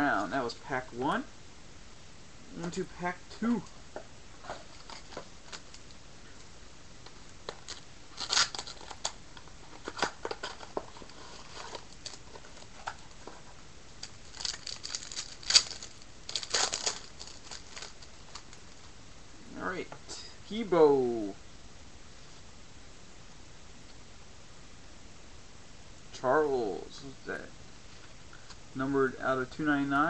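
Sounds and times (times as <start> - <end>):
wrapper crinkling and tearing: 4.4 - 6.0, 7.4 - 13.4, 14.0 - 18.9.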